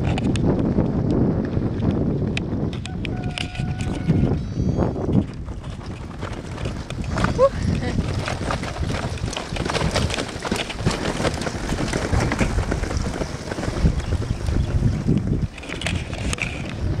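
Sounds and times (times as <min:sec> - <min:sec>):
bicycle clicks and rattles: 0:00.0 - 0:17.0
wind buffeting microphone: 0:00.0 - 0:17.0.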